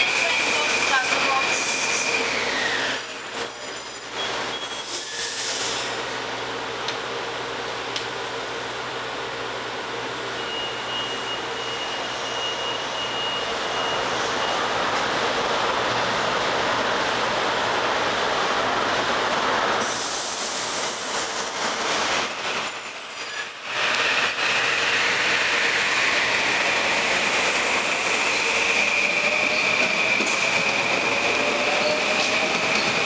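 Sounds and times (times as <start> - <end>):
steady high squeal: 0.0 - 6.0, 10.3 - 14.7, 20.8 - 33.0
train whine rising in pitch: 0.0 - 6.0, 10.3 - 14.9, 19.8 - 33.0
electric train rolling: 0.0 - 6.4, 11.3 - 33.0.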